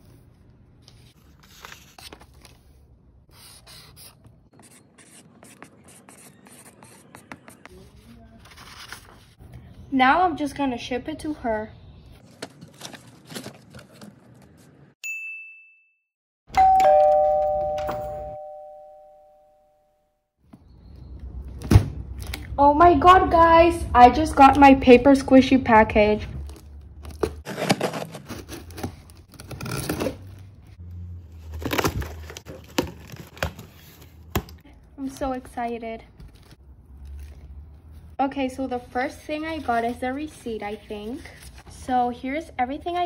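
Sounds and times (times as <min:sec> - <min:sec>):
paper rustling: 0:00.0 - 0:02.8, 0:05.0 - 0:09.4, 0:12.2 - 0:14.8, 0:38.8 - 0:41.8
marker scratching on paper: 0:03.3 - 0:08.0
two-tone doorbell chime: 0:16.5 - 0:20.1
short bright ding: 0:16.6 - 0:19.6.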